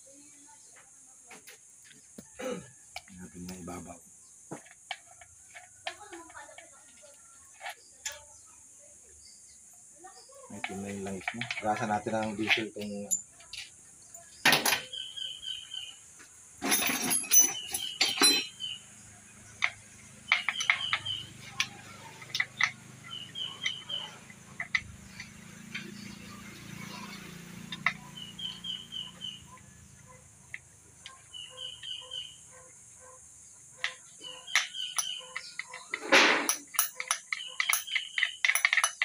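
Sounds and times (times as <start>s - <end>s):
metal tools clinking on bolts: 10.5s - 15.0s, 16.6s - 18.8s, 19.4s - 32.6s, 33.8s - 39.0s.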